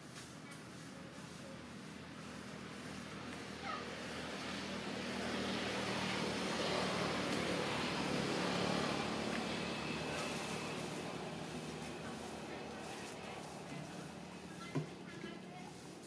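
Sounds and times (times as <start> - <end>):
motor vehicle passing by: 0.8 - 16.0.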